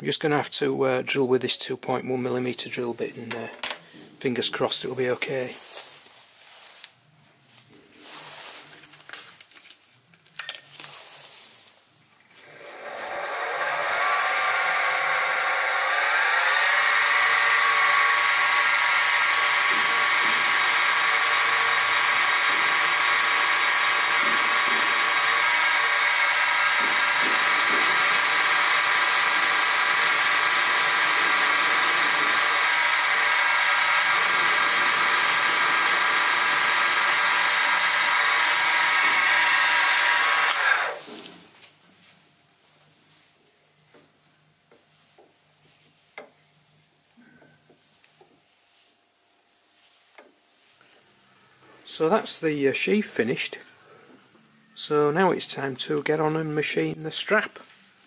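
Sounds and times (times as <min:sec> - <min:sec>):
mill motor whining: 0:12.1 - 0:41.0.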